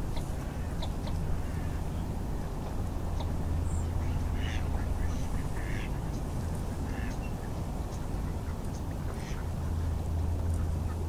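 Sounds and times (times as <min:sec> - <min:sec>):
steady low rumble: 0:00.0 - 0:11.0
ducks quacking: 0:04.0 - 0:11.0.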